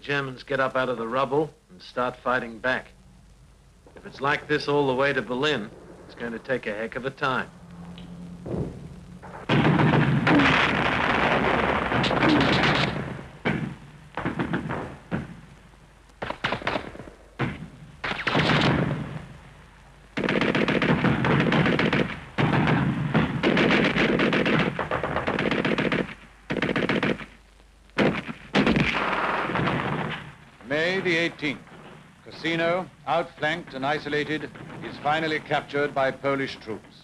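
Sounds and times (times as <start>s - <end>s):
machine-gun fire bursts: 9.5s - 15.3s, 16.2s - 19.1s, 20.2s - 27.4s, 28.0s - 30.2s.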